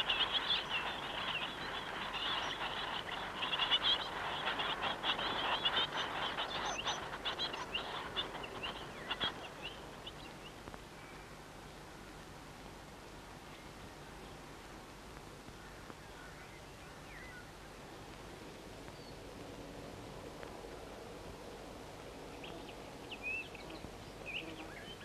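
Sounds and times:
high thin bird chirps: 0.0 - 9.8.

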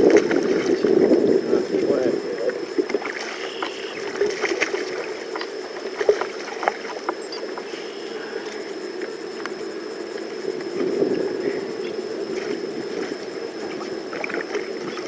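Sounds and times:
fish thrashing water splashing: 0.0 - 1.2, 2.8 - 7.2, 12.3 - 15.0
steady wash of water: 0.0 - 15.0.

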